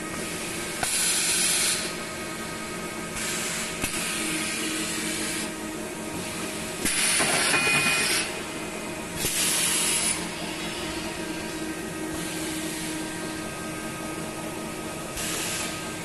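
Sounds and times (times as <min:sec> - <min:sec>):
grinding machine hum: 0:04.2 - 0:16.0.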